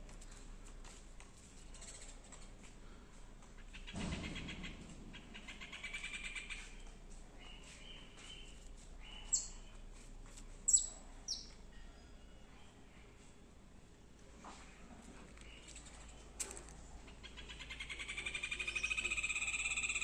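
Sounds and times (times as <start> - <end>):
sharp high bird calls: 17.0 - 20.0
bird trill: 17.2 - 20.0.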